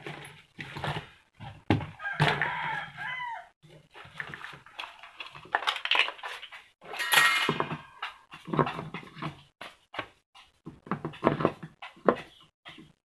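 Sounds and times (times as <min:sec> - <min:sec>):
plastic fan parts clattering: 0:03.9 - 0:09.4.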